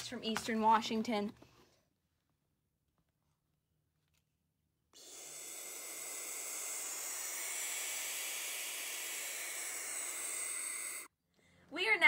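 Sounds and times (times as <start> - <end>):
owl nestlings hissing: 5.0 - 11.1.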